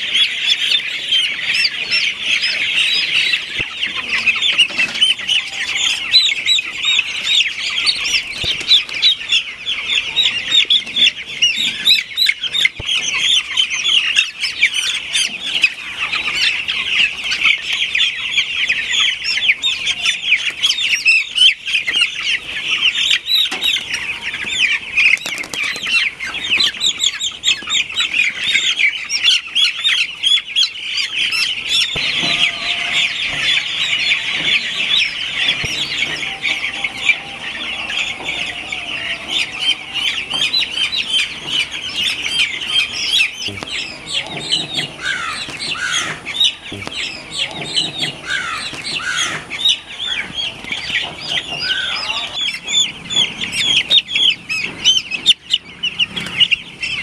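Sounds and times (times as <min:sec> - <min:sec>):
chicks peeping: 0:00.0 - 0:57.0.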